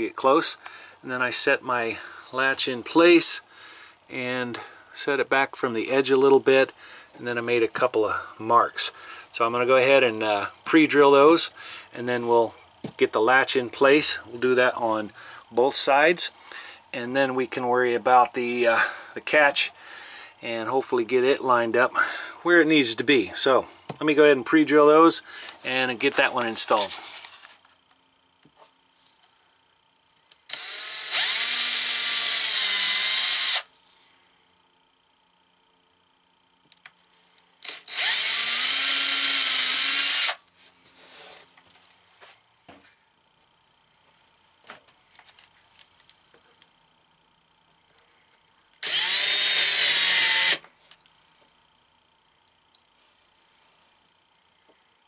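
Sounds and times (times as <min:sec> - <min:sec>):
cordless drill whining: 0:30.5 - 0:33.7, 0:37.6 - 0:40.4, 0:48.8 - 0:50.7.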